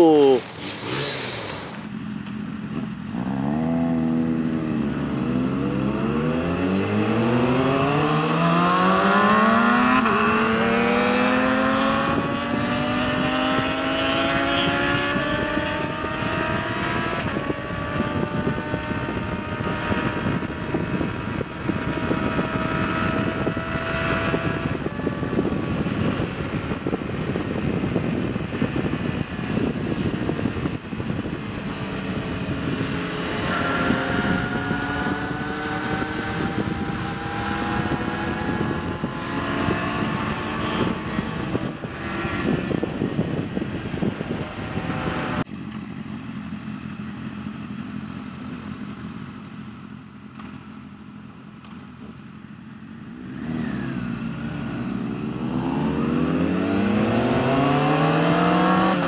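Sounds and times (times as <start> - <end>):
motorcycle engine accelerating: 0.0 - 59.0
wind rushing over microphone: 3.2 - 45.5, 53.2 - 59.0.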